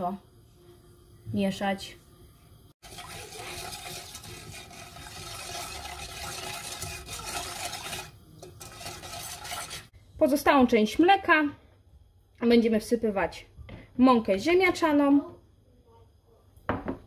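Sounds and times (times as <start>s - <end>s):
whisk stirring liquid in a pot: 2.8s - 9.9s.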